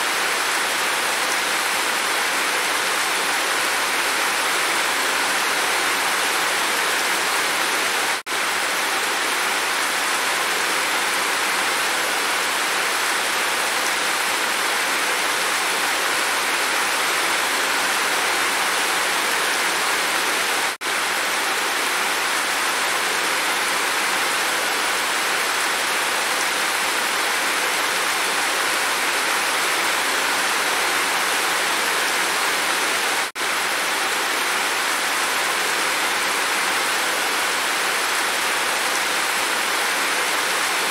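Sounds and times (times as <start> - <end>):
heavy rain falling: 0.0 - 40.9.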